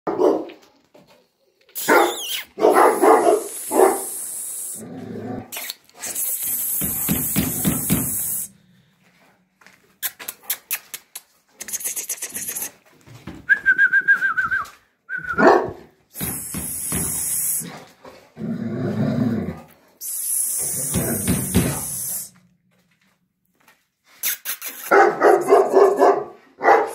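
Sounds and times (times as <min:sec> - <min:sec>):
dog whining: 0:01.8 - 0:02.6
dog yelping: 0:01.8 - 0:04.3
quick clicks: 0:10.0 - 0:12.7.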